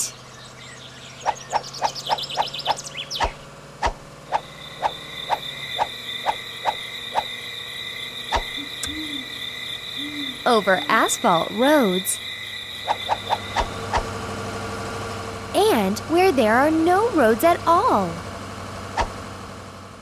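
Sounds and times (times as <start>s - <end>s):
high insect trill: 4.2s - 14.5s
soft owl hoot: 8.4s - 11.1s.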